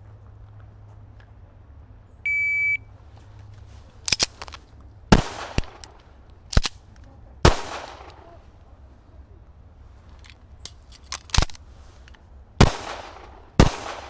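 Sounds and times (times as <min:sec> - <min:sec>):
shot timer beep: 0:02.3 - 0:02.8
handgun shots: 0:05.1 - 0:06.8.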